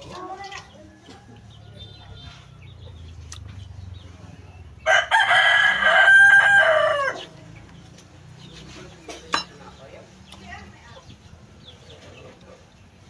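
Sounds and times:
rooster crowing: 4.8s - 7.3s.

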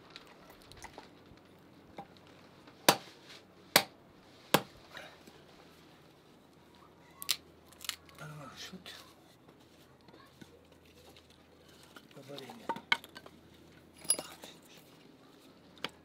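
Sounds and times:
hatchet chopping wood: 2.9s - 3.1s, 3.8s - 4.7s.

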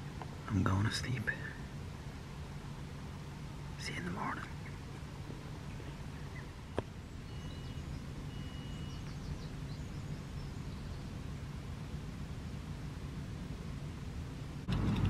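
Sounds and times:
low background rumble: 0.0s - 15.0s
bird whistling and chirping: 7.2s - 11.0s.

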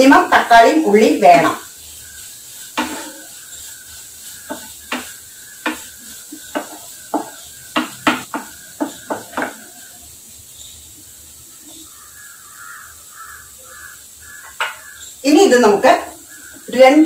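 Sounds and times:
wooden spatula scraping a pan: 0.0s - 10.8s.

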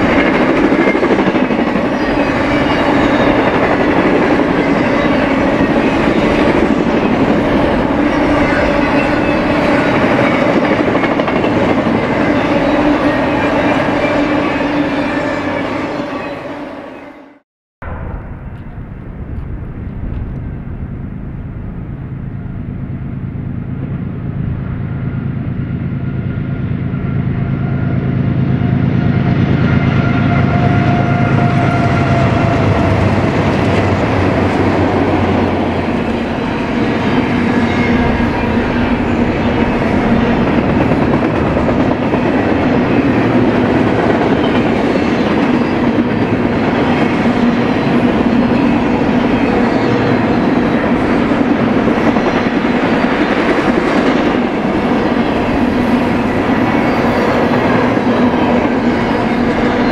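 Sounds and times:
train wheels clattering on rail: 0.0s - 14.2s, 29.2s - 59.9s
diesel locomotive engine drone: 0.0s - 59.9s.

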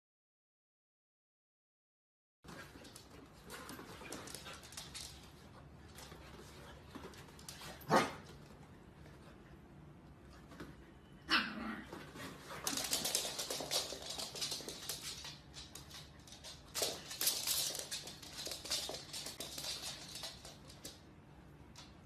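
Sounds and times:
dogs scratching and scuffling on floor: 2.5s - 9.5s, 11.9s - 21.1s.

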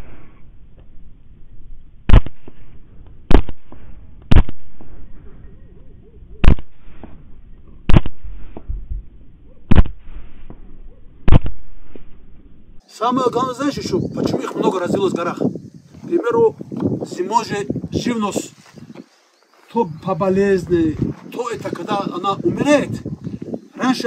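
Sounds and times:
rifle shots: 2.1s - 5.2s, 6.4s - 7.2s, 7.9s - 8.7s, 9.7s - 10.5s, 11.2s - 12.1s.

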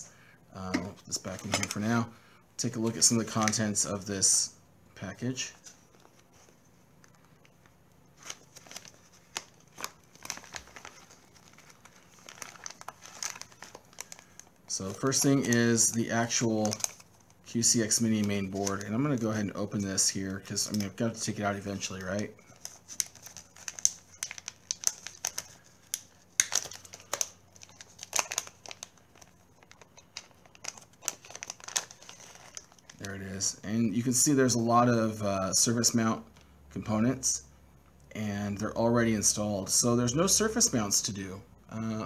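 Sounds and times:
plastic bag crinkling: 0.6s - 4.3s, 5.4s - 34.6s.

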